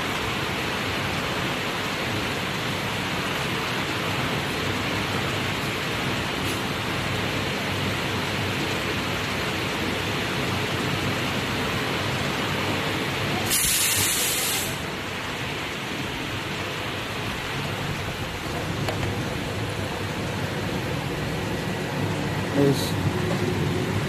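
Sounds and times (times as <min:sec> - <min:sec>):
press running with rushing hiss: 0:13.3 - 0:15.0
sharp hiss of air: 0:13.4 - 0:14.9.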